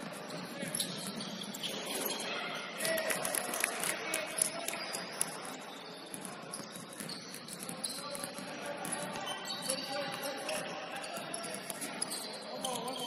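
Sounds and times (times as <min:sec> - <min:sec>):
sneakers squeaking on hardwood: 0:00.0 - 0:03.0, 0:04.3 - 0:13.0
faint voices: 0:00.0 - 0:13.0
basketball bouncing: 0:06.1 - 0:12.0.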